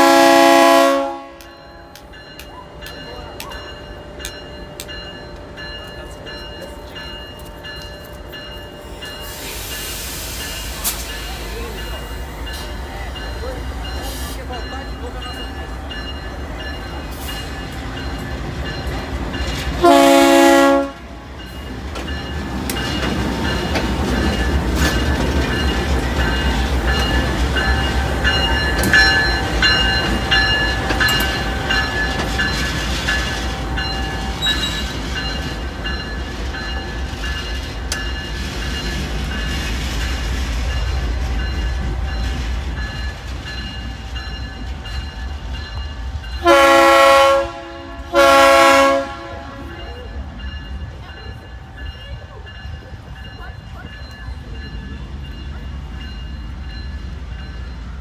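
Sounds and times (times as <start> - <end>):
locomotive horn blasts: 0.0 - 1.5, 19.8 - 21.2, 46.4 - 49.8
wheels clicking on rails: 21.4 - 45.9.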